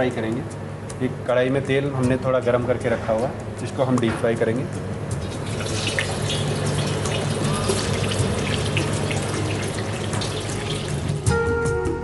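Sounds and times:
paneer sizzling in hot oil: 5.2 - 11.3.

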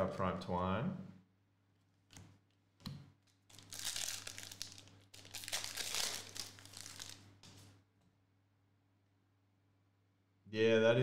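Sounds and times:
foil wrapper crinkling: 3.3 - 7.7.

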